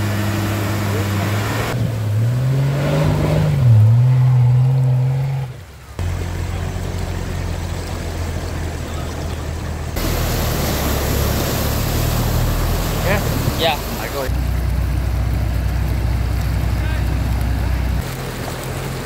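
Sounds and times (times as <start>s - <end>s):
engine revving: 0.0s - 8.8s
rushing hiss: 10.0s - 14.3s.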